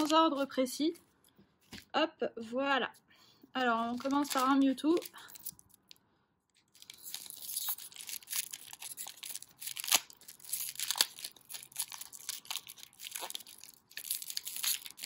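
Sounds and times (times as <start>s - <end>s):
plastic wrapper tearing: 0.0s - 0.5s, 3.9s - 5.8s, 6.7s - 15.0s.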